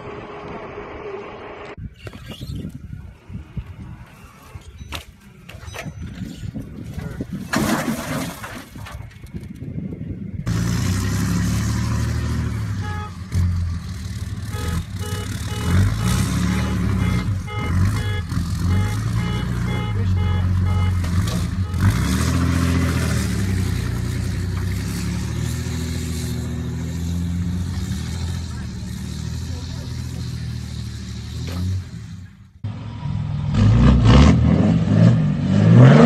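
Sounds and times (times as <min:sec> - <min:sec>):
diesel truck engine running: 0:09.1 - 0:34.1.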